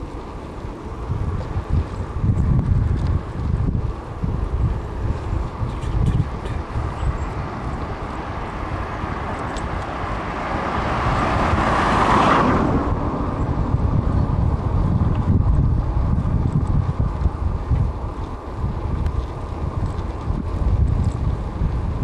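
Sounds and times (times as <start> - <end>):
wind rumbling on microphone: 0.0 - 22.0
car passing close by: 7.0 - 14.8.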